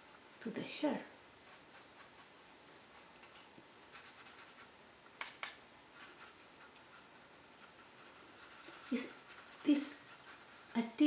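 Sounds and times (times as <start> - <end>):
paintbrush scratching on cardboard: 1.4 - 4.7, 5.9 - 11.0.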